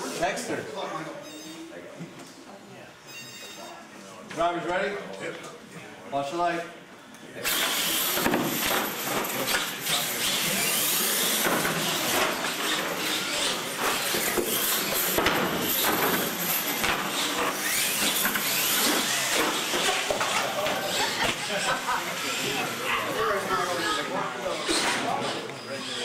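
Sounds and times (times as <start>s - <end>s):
rc truck tires rushing: 9.4s - 21.2s.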